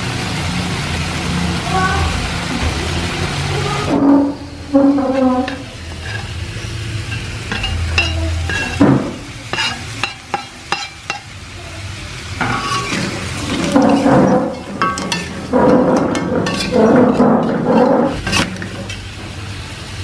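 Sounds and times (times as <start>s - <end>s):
food sizzling: 0.0s - 20.0s
spatula scraping in wok: 3.8s - 11.3s, 12.4s - 19.2s
metal clinks on pan: 7.1s - 8.8s, 9.5s - 11.3s, 13.7s - 17.5s.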